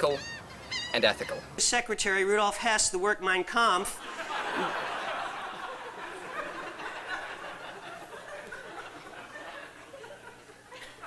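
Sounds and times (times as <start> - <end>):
audience laughing: 4.0 - 11.0.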